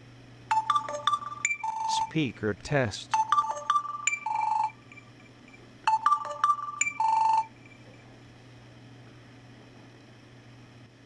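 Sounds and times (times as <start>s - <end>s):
phone speaker electronic tune: 0.5s - 2.3s, 3.1s - 8.0s.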